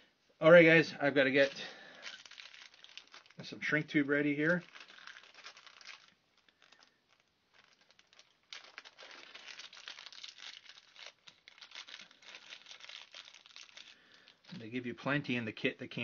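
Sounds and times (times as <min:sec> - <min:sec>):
packaging crinkling and rustling: 0:01.2 - 0:16.0.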